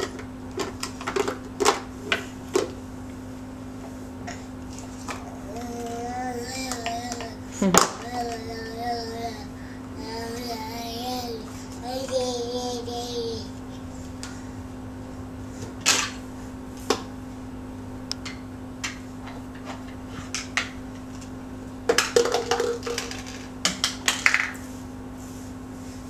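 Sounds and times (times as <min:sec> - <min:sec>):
plastic cups clattering together: 0:21.9 - 0:24.6.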